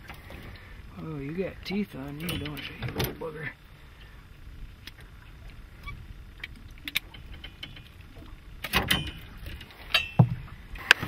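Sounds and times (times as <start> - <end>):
small clicks and rattles: 6.4 - 8.0
dull thump: 10.1 - 10.5.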